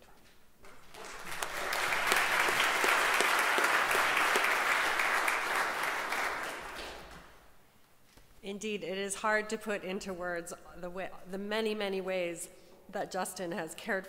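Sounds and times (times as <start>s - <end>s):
congregation applauding: 0.7s - 7.4s.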